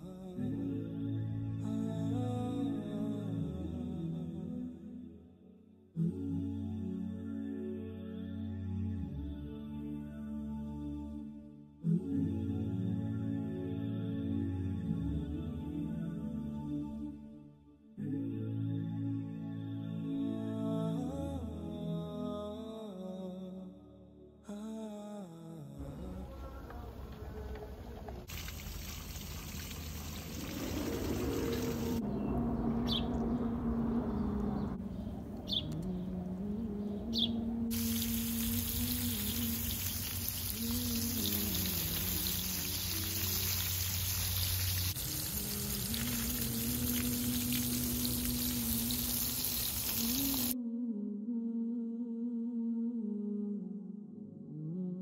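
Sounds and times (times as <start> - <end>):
wordless vocal humming melody: 0.0 - 5.2, 6.0 - 17.3, 18.0 - 28.3, 30.3 - 55.0
hose water spraying on shrubs: 28.3 - 32.0, 37.7 - 50.6.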